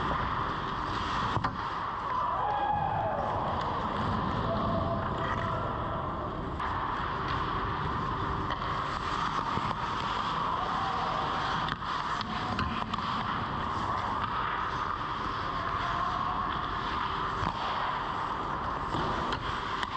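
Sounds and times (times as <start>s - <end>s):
skates scraping on ice: 0.0s - 2.3s, 6.6s - 19.9s
background noise: 0.0s - 19.9s.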